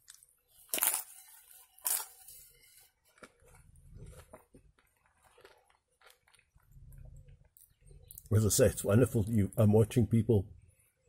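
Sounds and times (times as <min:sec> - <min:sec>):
flatbread tearing: 0:00.0 - 0:06.7
faint chewing: 0:00.0 - 0:08.3.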